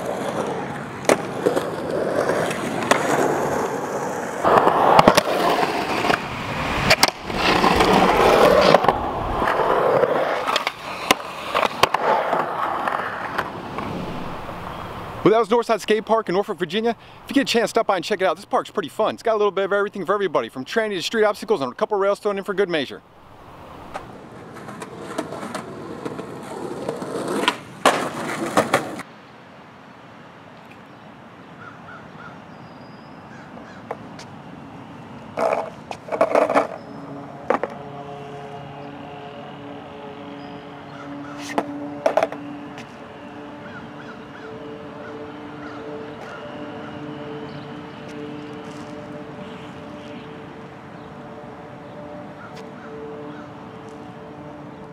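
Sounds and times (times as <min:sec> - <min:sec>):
skateboard tail clacks: 0:00.0 - 0:14.0, 0:23.9 - 0:29.0, 0:35.4 - 0:36.8, 0:37.5 - 0:37.8, 0:41.4 - 0:43.0
skateboard grinding a ledge: 0:00.0 - 0:15.0, 0:23.7 - 0:29.0, 0:35.3 - 0:37.9, 0:41.0 - 0:42.5
outdoor background noise: 0:00.0 - 0:54.9
skateboard wheels rolling on concrete: 0:00.0 - 0:54.9.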